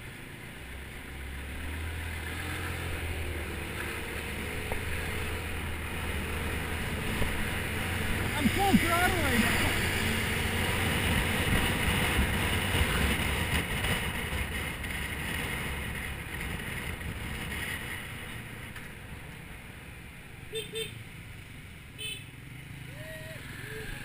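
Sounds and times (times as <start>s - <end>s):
wind rush on microphone: 6.6s - 18.4s.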